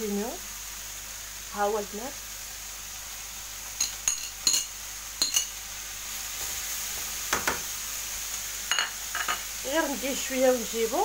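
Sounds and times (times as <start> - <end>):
frying sizzle: 0.0 - 11.0
utensil clinking on dish: 3.8 - 5.5.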